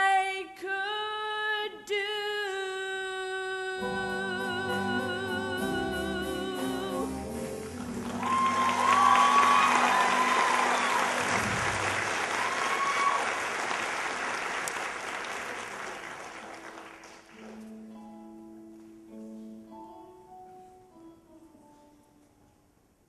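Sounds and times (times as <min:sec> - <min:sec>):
audience applauding: 0:07.4 - 0:17.5
slow instrumental held notes: 0:17.4 - 0:22.7.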